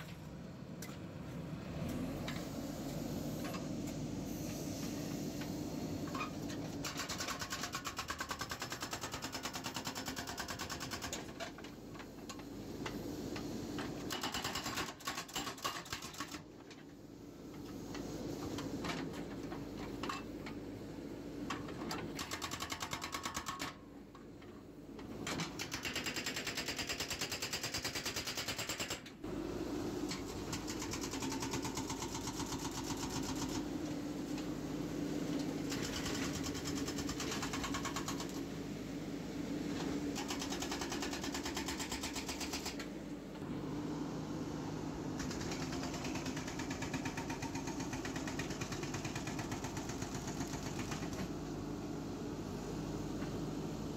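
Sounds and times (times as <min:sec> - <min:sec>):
diesel engine running: 0:00.0 - 0:07.2, 0:29.3 - 0:53.9.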